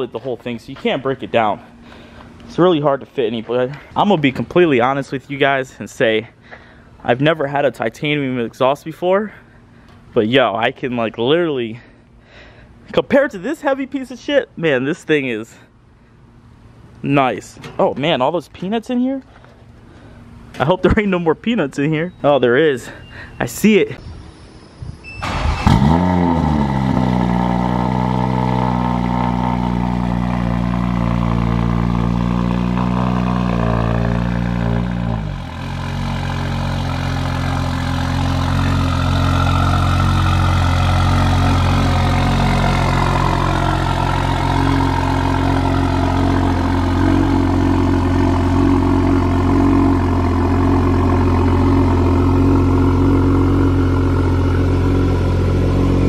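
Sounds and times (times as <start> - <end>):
car engine idling: 25.2 - 56.0
engine rev flare: 25.2 - 56.0.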